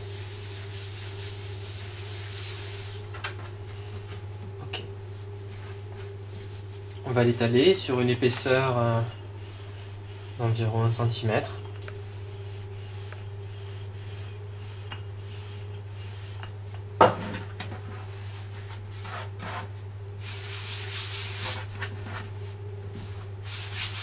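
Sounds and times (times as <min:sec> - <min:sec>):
rubbing and brushing dough: 0:00.0 - 0:24.0
steady low hum: 0:00.0 - 0:24.0
scraping rub: 0:17.2 - 0:24.0.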